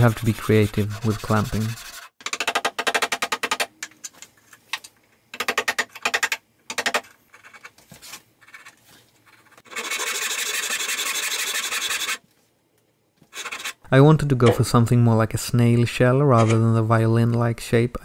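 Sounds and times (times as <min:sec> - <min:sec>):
hand saw cutting wood: 0:00.0 - 0:02.1, 0:09.6 - 0:12.2.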